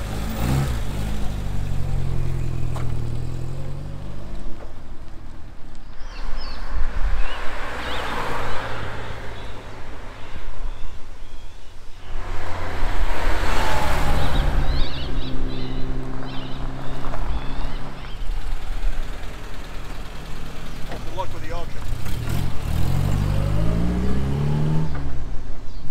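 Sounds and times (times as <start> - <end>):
birds chirping: 0.2 - 25.9
wind rushing over microphone: 6.0 - 18.7
sports car engine running: 14.4 - 23.6.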